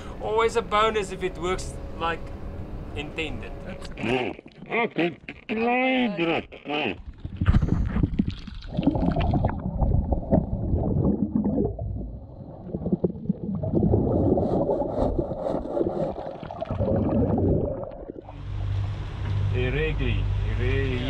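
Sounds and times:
water gurgling: 0:03.7 - 0:05.1, 0:06.6 - 0:19.0
underwater regulator bubbles: 0:07.0 - 0:18.4.

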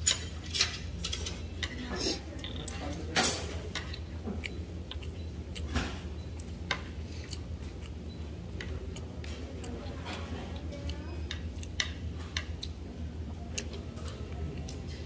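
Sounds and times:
utensils clicking on dishes: 0:00.0 - 0:08.0, 0:08.6 - 0:12.8
steady low hum: 0:00.0 - 0:15.0
mouth sounds eating: 0:03.8 - 0:11.8.

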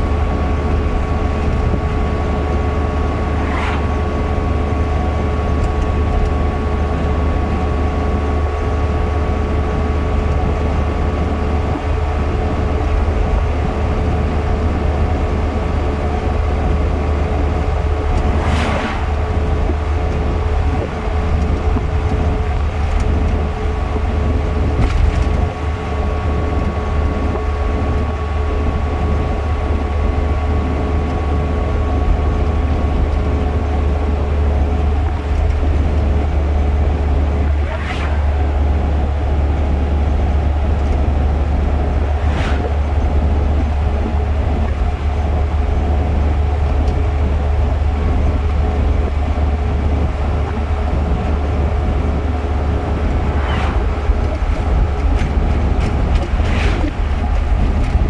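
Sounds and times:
car road and engine noise: 0:00.0 - 0:58.0
thin steady whine: 0:00.0 - 0:58.0
truck passing whoosh: 0:02.1 - 0:05.6, 0:17.2 - 0:20.9, 0:37.1 - 0:39.4, 0:41.7 - 0:43.6, 0:51.8 - 0:58.0.

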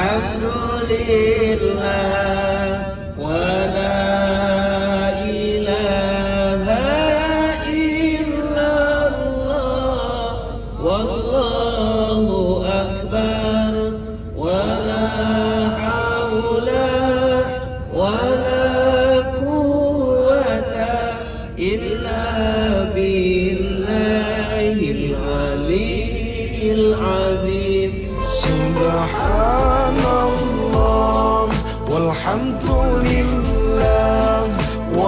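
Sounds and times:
man chanting: 0:28.0 - 0:35.0.

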